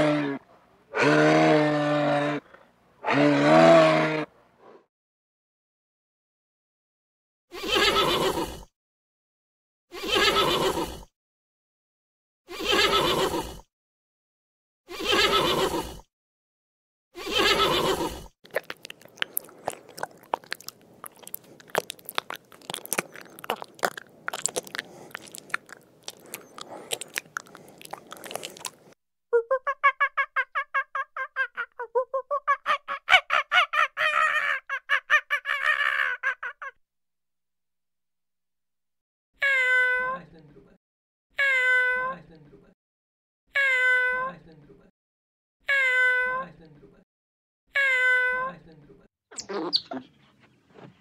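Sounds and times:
large animal calling: 0:00.0 - 0:04.3
crunching and chewing: 0:18.4 - 0:29.0.

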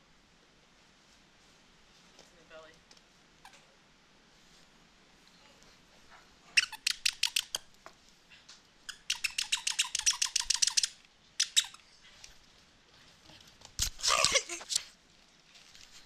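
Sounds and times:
dog toy squeaking: 0:06.6 - 0:07.6, 0:08.9 - 0:11.8.

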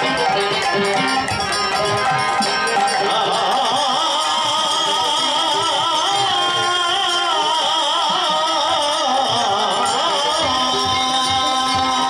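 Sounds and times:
hand cymbals: 0:00.0 - 0:12.0
hand drums: 0:00.0 - 0:12.0
harmonium: 0:00.0 - 0:12.0
man singing: 0:02.8 - 0:12.0.

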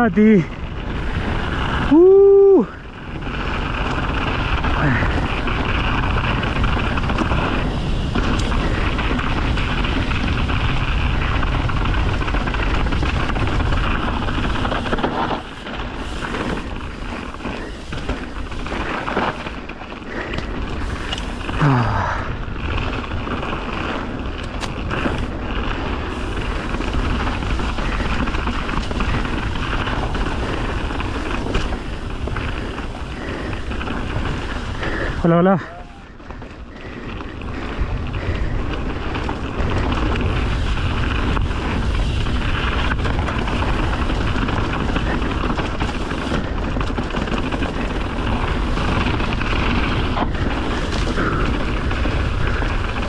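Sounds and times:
bike tyres on dirt: 0:00.0 - 0:53.0
wind rumble on microphone: 0:00.0 - 0:53.0
bike clicks and knocks: 0:05.5 - 0:21.5, 0:22.6 - 0:34.5.

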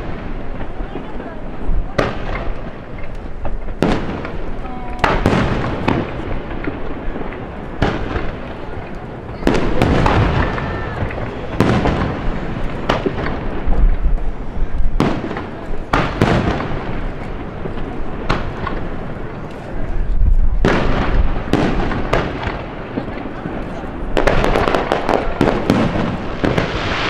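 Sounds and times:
echoing rumble and crackle: 0:00.0 - 0:27.0
firework shells bursting: 0:20.6 - 0:27.0.

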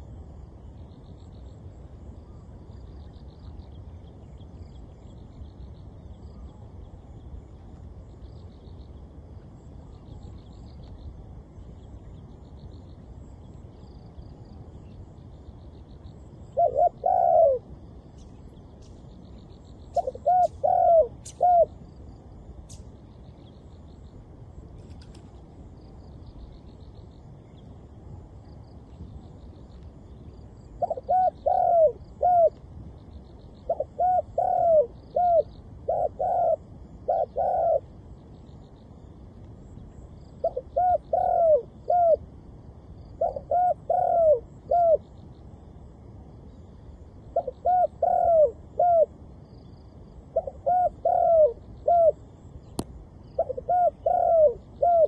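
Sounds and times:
small birds chirping faintly: 0:00.0 - 0:55.0
dove cooing: 0:16.4 - 0:18.9, 0:19.9 - 0:21.8, 0:30.6 - 0:32.6, 0:33.6 - 0:38.0, 0:40.4 - 0:42.3, 0:43.0 - 0:45.2, 0:47.3 - 0:52.4, 0:53.3 - 0:55.0.

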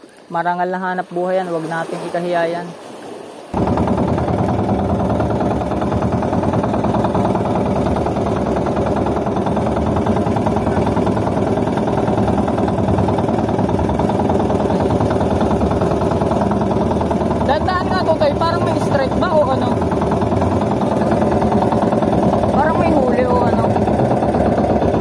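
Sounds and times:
boat engine running steadily: 0:00.0 - 0:25.0.

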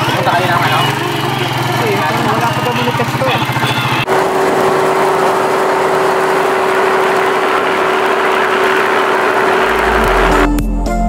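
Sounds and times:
boat engine humming: 0:00.0 - 0:10.6
low bass music: 0:09.4 - 0:11.0.

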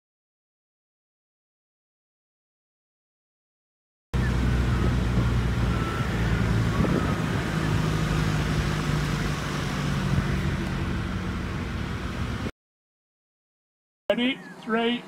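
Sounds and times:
vehicle engine running: 0:04.2 - 0:12.5.

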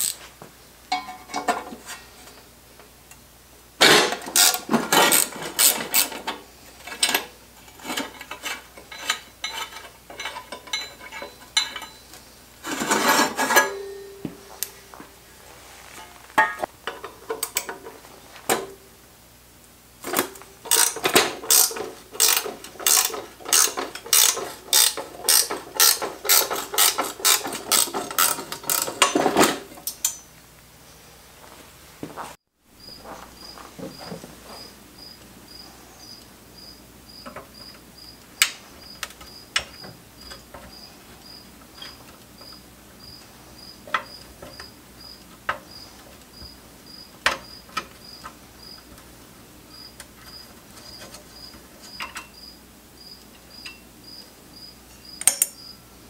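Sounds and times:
ratchet wrench clicking: 0:00.0 - 0:00.2, 0:20.7 - 0:29.0
metal parts clinking: 0:03.9 - 0:12.0, 0:20.1 - 0:30.3
short metallic ring: 0:13.5 - 0:14.9.

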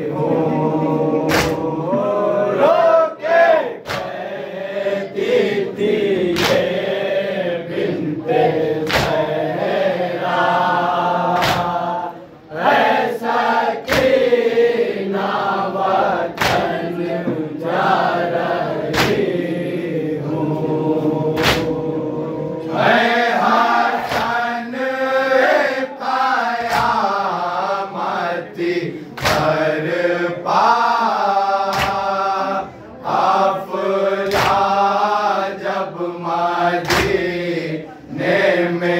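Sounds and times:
men chanting in unison: 0:00.0 - 0:38.9
hands slapping chests: 0:01.3 - 0:01.7, 0:03.8 - 0:04.2, 0:06.3 - 0:06.7, 0:08.8 - 0:09.3, 0:11.3 - 0:11.8, 0:13.8 - 0:14.3, 0:16.3 - 0:16.8, 0:18.8 - 0:19.3, 0:21.4 - 0:21.8, 0:24.0 - 0:24.4, 0:26.6 - 0:27.1, 0:29.1 - 0:29.6, 0:31.6 - 0:32.1, 0:34.2 - 0:34.7, 0:36.8 - 0:37.2.

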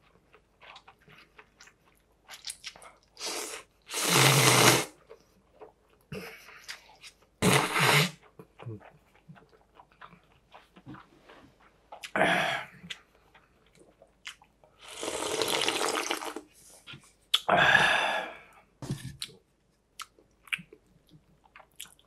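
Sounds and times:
soft chewing: 0:00.0 - 0:03.9, 0:04.9 - 0:07.4, 0:08.1 - 0:14.9, 0:18.4 - 0:22.0
slurping noodles: 0:03.2 - 0:05.0, 0:07.4 - 0:08.2, 0:14.8 - 0:16.5.

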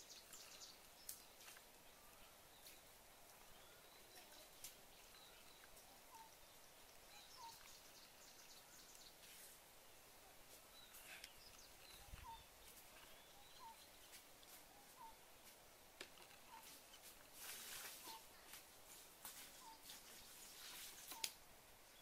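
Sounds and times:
bird chirping: 0:00.0 - 0:18.5, 0:19.4 - 0:22.0
faint clicks: 0:00.2 - 0:01.7.

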